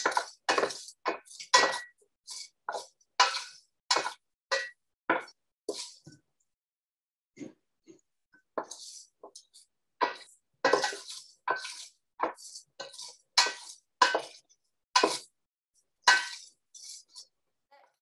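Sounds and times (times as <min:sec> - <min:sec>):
wooden spoon scraping metal pot: 0:00.0 - 0:06.2, 0:08.5 - 0:15.4, 0:16.0 - 0:17.4.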